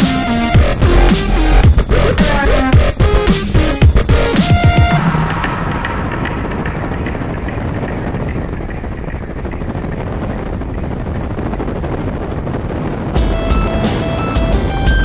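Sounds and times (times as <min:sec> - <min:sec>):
powerboat engines running: 0:05.0 - 0:15.0.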